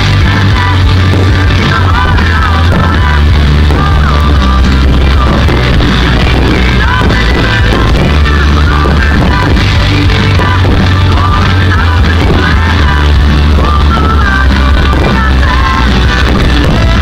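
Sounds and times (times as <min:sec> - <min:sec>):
heavy bass line: 0:00.0 - 0:17.0
rock song with singing: 0:00.0 - 0:17.0.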